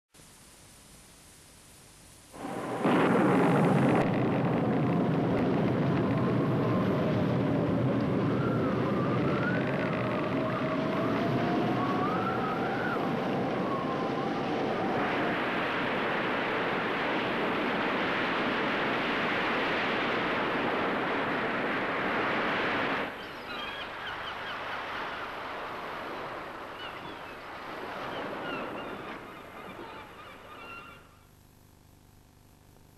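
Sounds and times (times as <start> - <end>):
breaking waves hissing: 2.3 - 5.0, 14.4 - 30.4
high wind whistles: 2.3 - 31.1
howling wind: 2.3 - 31.2
roar of wind and water: 2.4 - 31.2.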